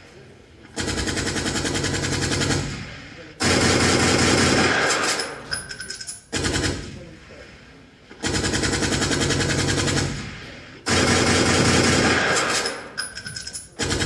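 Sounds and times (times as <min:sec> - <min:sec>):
machine-gun fire bursts: 0:00.7 - 0:05.5, 0:06.3 - 0:07.0, 0:08.2 - 0:13.0, 0:13.7 - 0:14.0.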